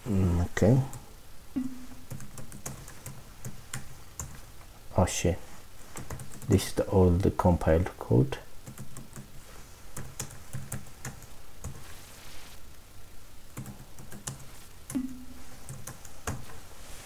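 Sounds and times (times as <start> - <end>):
computer keyboard typing: 2.1 - 4.4, 6.0 - 6.6, 8.6 - 9.3, 10.0 - 11.8, 13.6 - 15.0.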